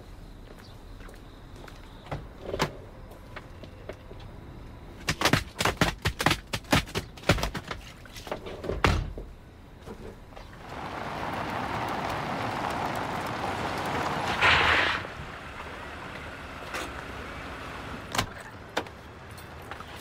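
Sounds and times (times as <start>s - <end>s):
car driving off: 10.6s - 20.0s.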